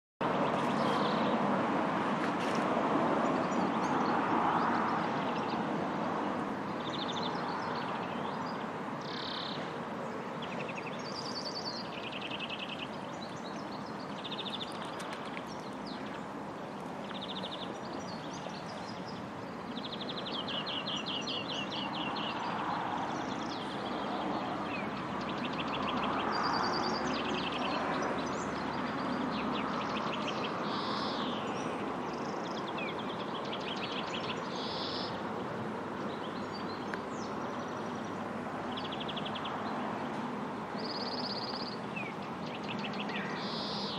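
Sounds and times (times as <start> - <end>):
songbirds trilling and chirping: 0.2 - 1.6, 2.4 - 43.9
outdoor background noise: 0.2 - 43.9.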